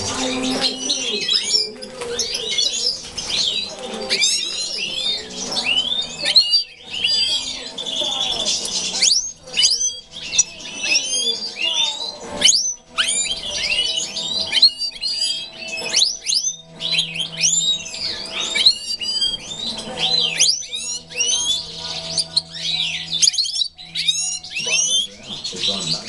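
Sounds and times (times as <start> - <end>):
goldfinches singing and twittering: 0.0 - 26.0.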